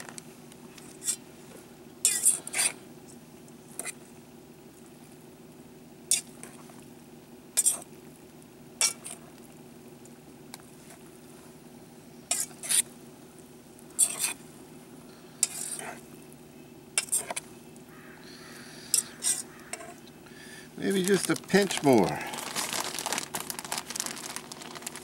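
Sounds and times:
steady low hum: 0.0 - 25.0
fork scraping metal pot: 15.4 - 15.9.

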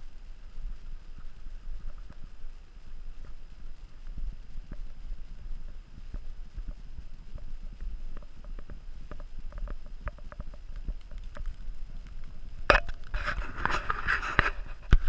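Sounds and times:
crunching rubbing noise: 1.1 - 15.0
camera handling rumble: 8.1 - 15.0.

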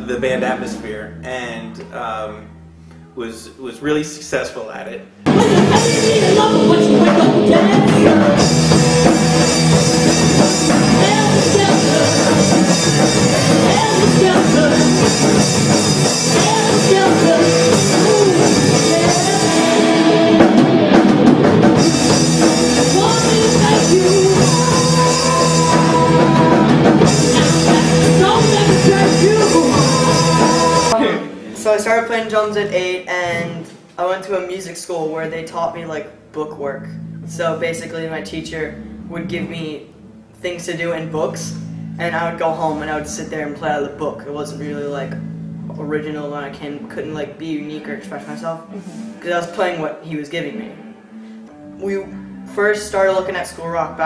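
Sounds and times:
rock band playing: 5.2 - 31.7
person singing: 5.3 - 31.6.

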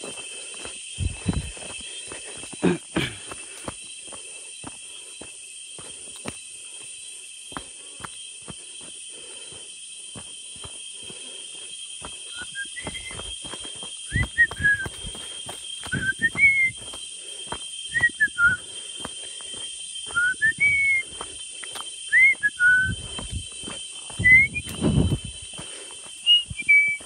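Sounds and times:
footsteps on dirt trail: 0.0 - 27.0
forest insects droning: 0.0 - 27.0
whistled sliding notes: 12.3 - 17.0, 17.8 - 18.8, 19.4 - 21.4, 22.0 - 25.5, 26.2 - 27.0.

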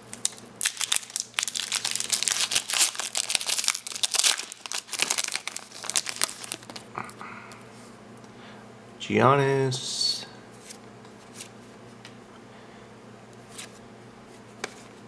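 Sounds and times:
foil wrapper crinkling and tearing: 0.1 - 6.9.

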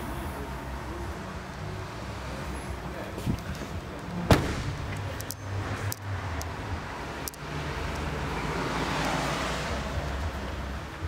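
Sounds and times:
car boot lid thump: 4.3 - 5.0.

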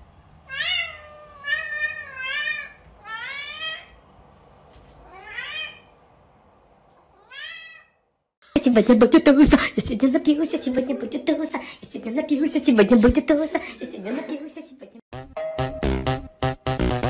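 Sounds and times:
cat meowing: 0.5 - 4.0, 5.0 - 5.9, 7.1 - 8.0.

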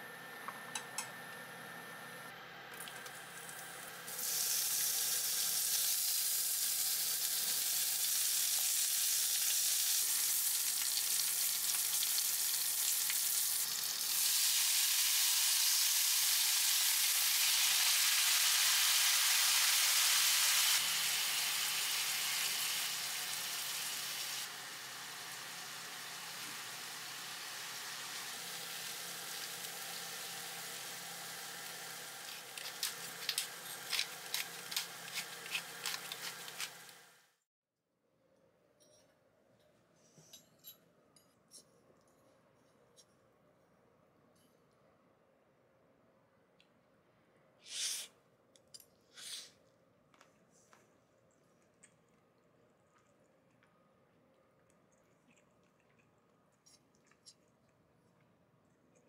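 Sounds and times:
pasta sizzling in a skillet: 4.0 - 37.3.

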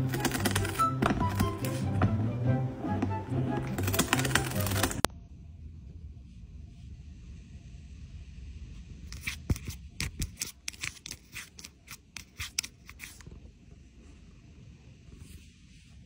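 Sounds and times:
cat claws tapping on phone: 9.2 - 13.2.

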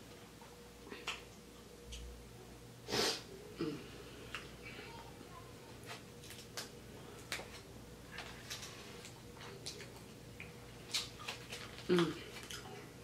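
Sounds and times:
eating sounds: 6.2 - 13.0
plastic bag crinkling: 10.8 - 12.8.

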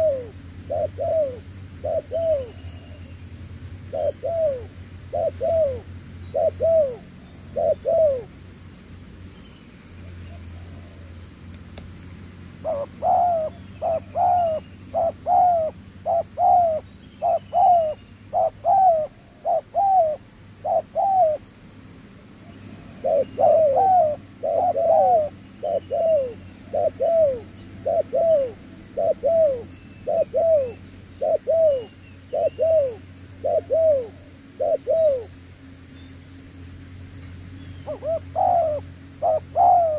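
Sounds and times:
dove cooing: 0.0 - 3.1, 3.9 - 8.4, 12.6 - 21.4, 23.0 - 35.4, 37.8 - 39.9.

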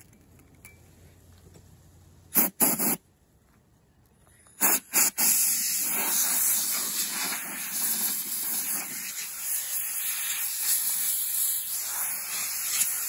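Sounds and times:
compressed air blow gun hissing: 2.3 - 3.0, 4.6 - 13.0.

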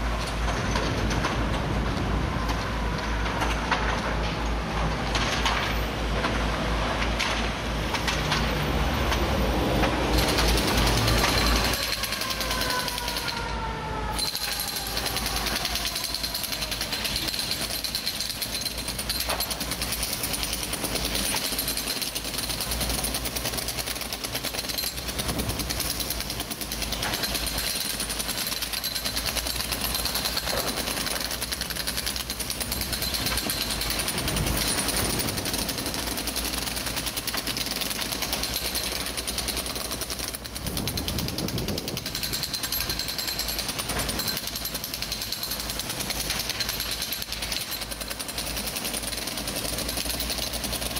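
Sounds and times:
jackhammer hammering brick: 10.0 - 13.4, 14.2 - 50.9.

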